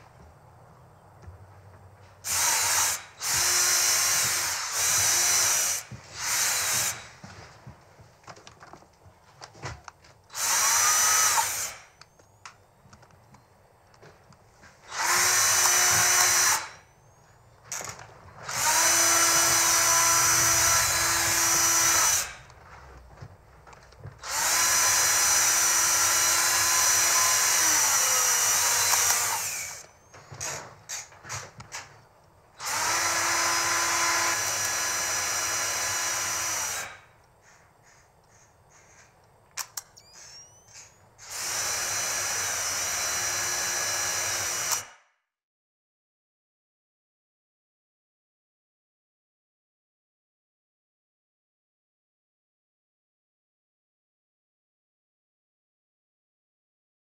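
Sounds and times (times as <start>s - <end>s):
cordless drill running: 2.2s - 7.1s, 10.3s - 12.0s, 14.9s - 16.8s, 18.4s - 22.5s, 24.2s - 30.0s, 32.6s - 37.1s, 41.2s - 44.9s.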